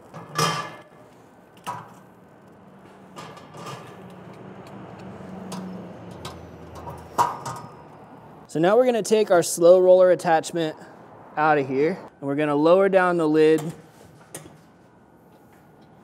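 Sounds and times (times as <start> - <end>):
metal rattling and scraping: 2.9 - 4.6
metal grill grate clanking: 3.0 - 4.4.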